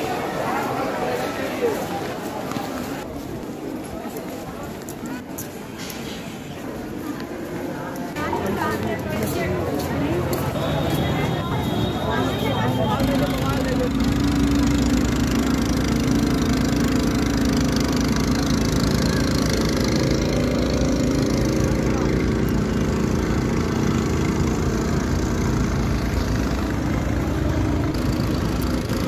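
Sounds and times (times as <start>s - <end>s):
small engine idling: 13.1s - 29.0s.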